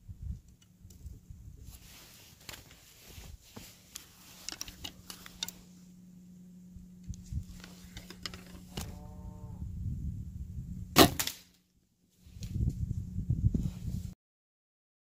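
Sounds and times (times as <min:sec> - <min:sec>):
low steady hum: 0:00.0 - 0:14.2
handling clicks and rustles: 0:00.4 - 0:09.0.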